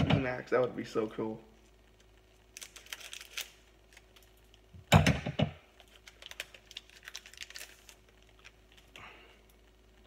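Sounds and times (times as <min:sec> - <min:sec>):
foil wrapper crackling: 0:02.0 - 0:04.7, 0:05.7 - 0:09.0.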